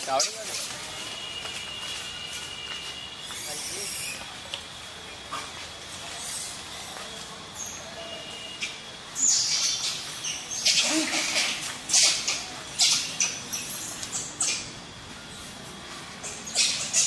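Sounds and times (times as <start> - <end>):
animal squeaks and squeals: 8.6 - 14.7, 16.2 - 17.0.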